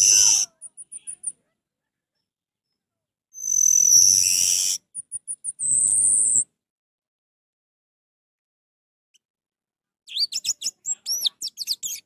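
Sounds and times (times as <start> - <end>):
bird singing: 0.0 - 1.4, 3.4 - 6.4, 10.1 - 12.0
quick high bird chirps: 0.0 - 1.4, 3.4 - 6.5.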